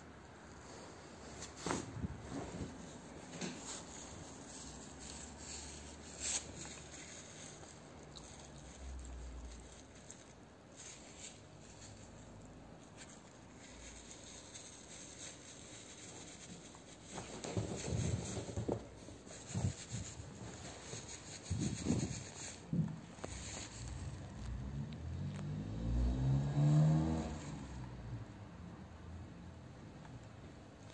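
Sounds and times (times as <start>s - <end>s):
puppy rubbing against fabric: 0.6s - 24.6s.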